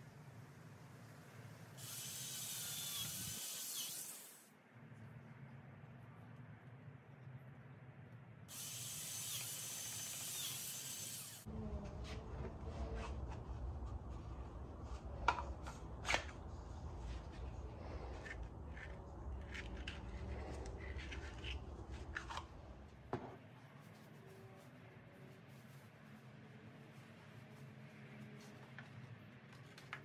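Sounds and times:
cordless drill whirring: 1.8 - 4.4, 8.5 - 11.5
low rumble: 11.5 - 23.0.

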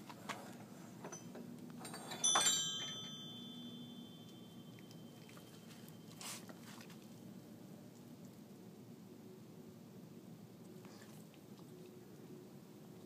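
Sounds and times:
metallic chime ringing: 1.9 - 6.1.

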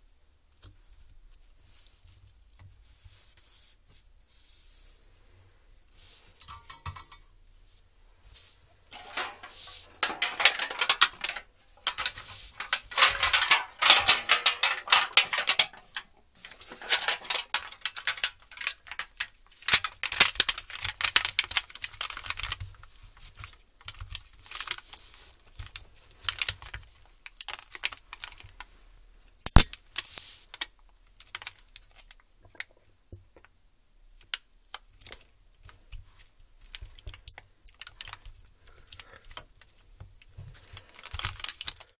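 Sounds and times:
metal plate and foil rattling: 6.3 - 7.3, 8.8 - 26.8, 40.6 - 41.9
keyboard clicking and crackling: 9.0 - 22.6.

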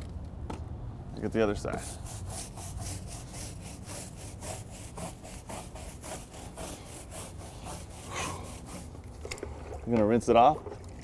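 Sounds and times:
brush scrubbing rubber tire: 1.4 - 9.0.

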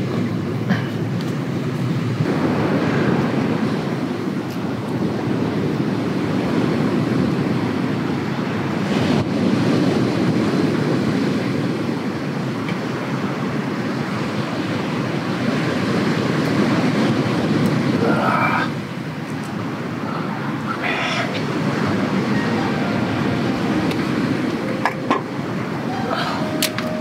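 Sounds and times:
wind buffeting microphone: 0.0 - 27.0
wind rushing: 2.0 - 11.5, 20.4 - 27.0.

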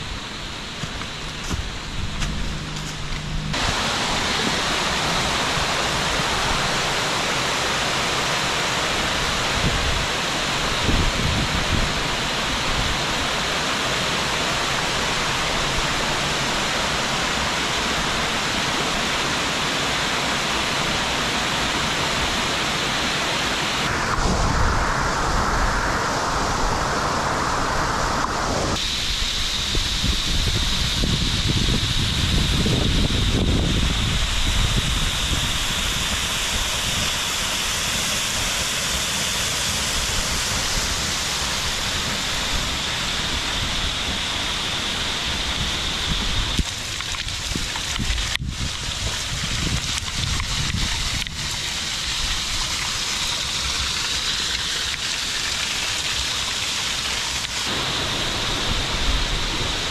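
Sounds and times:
low buffeting: 0.0 - 4.0
waterfall rushing: 3.5 - 59.9.

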